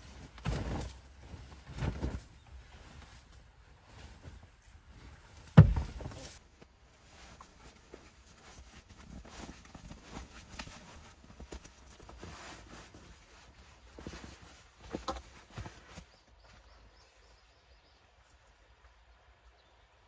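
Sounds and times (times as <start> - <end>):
nylon sleeping bag rustling: 0.0 - 16.2
heavy thump: 5.5 - 6.2.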